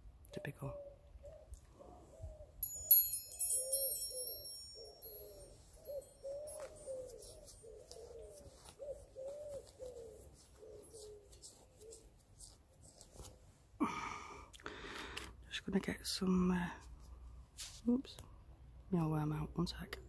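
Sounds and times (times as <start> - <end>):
pigeon cooing: 0.4 - 2.6, 3.5 - 12.5.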